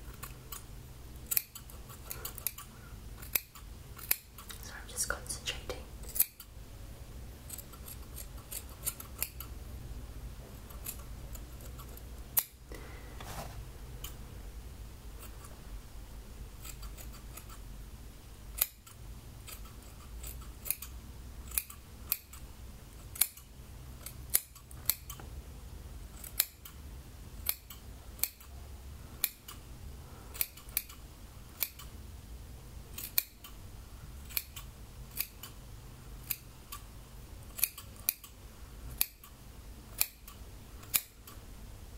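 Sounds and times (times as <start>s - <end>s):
scissors snipping hair: 0.1s - 4.6s, 6.0s - 6.5s, 7.5s - 9.5s, 10.6s - 12.6s, 16.6s - 17.6s, 18.6s - 22.5s, 23.1s - 25.2s, 26.2s - 26.8s, 27.4s - 28.5s, 29.2s - 29.6s, 30.4s - 31.0s, 31.6s - 32.0s, 32.9s - 33.6s, 34.2s - 35.6s, 36.2s - 36.8s, 37.5s - 41.4s.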